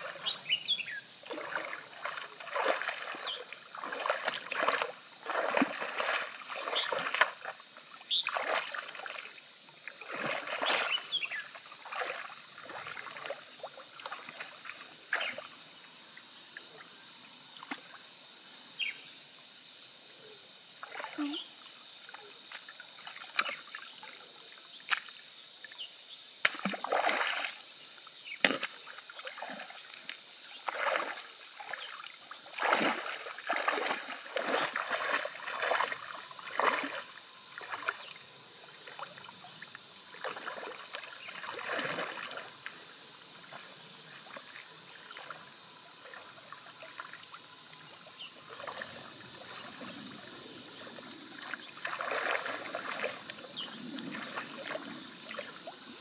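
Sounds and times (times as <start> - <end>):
shallow water splashing: 1.2 - 15.5, 26.5 - 27.6, 28.4 - 42.8, 43.4 - 56.0.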